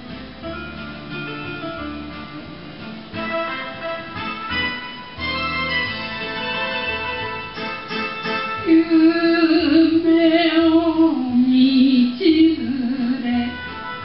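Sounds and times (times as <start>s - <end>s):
instrumental backing: 0.0s - 14.0s
person singing with vibrato: 8.5s - 14.0s.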